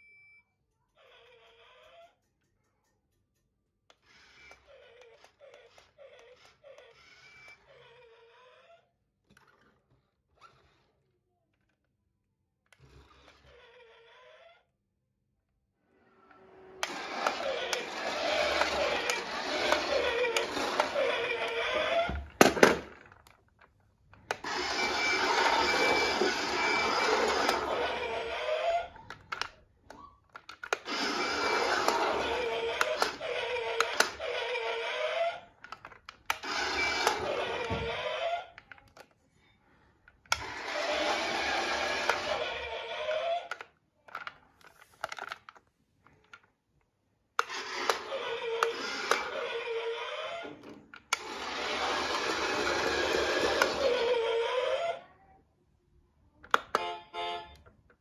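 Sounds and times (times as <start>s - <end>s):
toy speaker playing sound clip: 0.7s - 2.4s, 3.9s - 8.9s, 16.3s - 22.9s, 24.3s - 39.1s, 40.3s - 44.3s, 47.4s - 55.2s, 56.4s - 57.8s.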